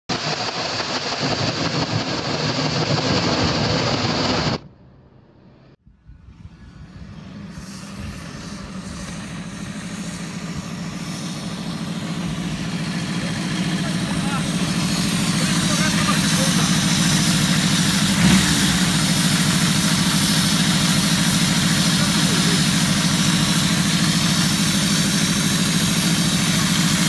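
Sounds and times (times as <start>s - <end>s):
loud dense noise: 0.1s - 27.0s
motorcycle engine running: 5.2s - 27.0s.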